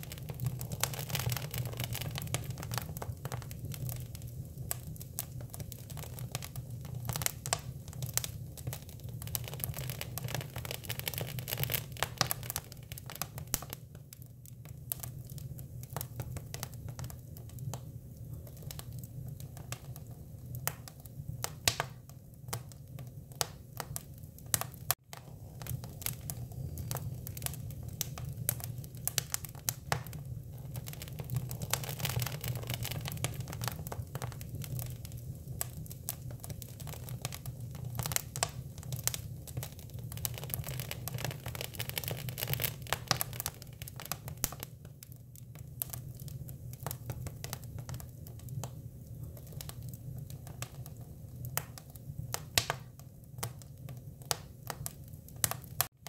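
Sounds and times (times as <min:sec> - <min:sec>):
wood fire crackling and popping: 0:00.0 - 0:56.0.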